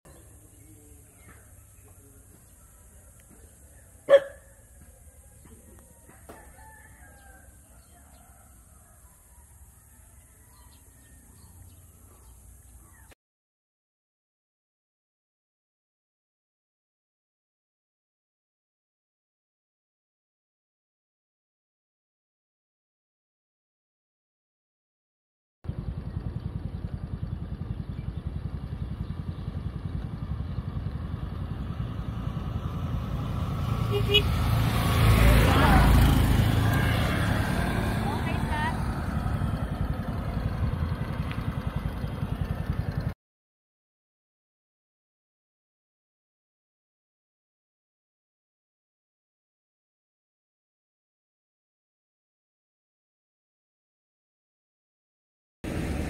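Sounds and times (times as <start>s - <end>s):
motorcycle engine rumbling: 0.1s - 13.1s, 25.7s - 43.2s, 55.7s - 56.0s
rooster crowing in the distance: 5.8s - 11.7s.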